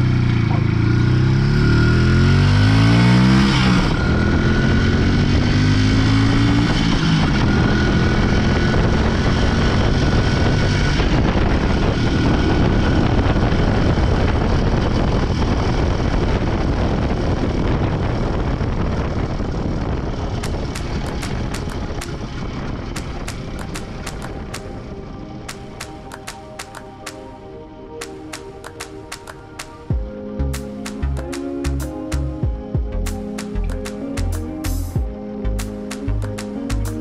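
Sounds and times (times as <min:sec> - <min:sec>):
motorcycle engine accelerating: 0:00.0 - 0:26.2
rushing noise of the ride: 0:03.0 - 0:37.0.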